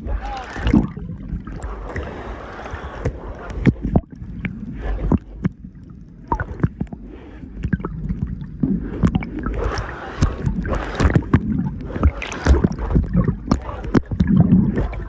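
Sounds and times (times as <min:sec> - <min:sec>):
steady low rumble: 0:00.0 - 0:15.0
water sloshing and bubbling: 0:00.0 - 0:15.0.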